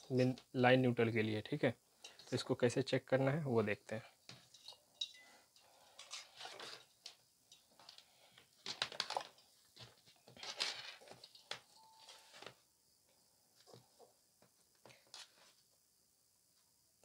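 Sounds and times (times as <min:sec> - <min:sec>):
wires rustling and scraping: 0:04.2 - 0:12.6, 0:13.5 - 0:15.7.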